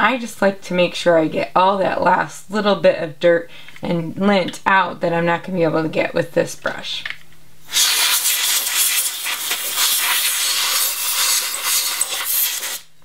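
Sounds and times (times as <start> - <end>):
compressed air can hissing: 7.6 - 12.9.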